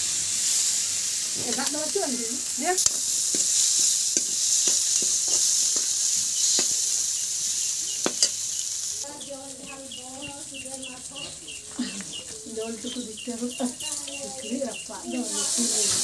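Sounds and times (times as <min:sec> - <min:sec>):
onions sizzling in oil: 0:00.0 - 0:16.0
metal spoon scraping pan: 0:02.7 - 0:07.0, 0:07.6 - 0:08.6.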